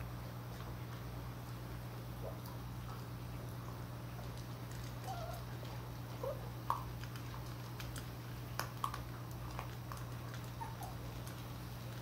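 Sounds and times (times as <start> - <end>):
dry kibble crunching: 2.5 - 12.0
puppy squeaks: 5.0 - 5.4, 10.6 - 11.0.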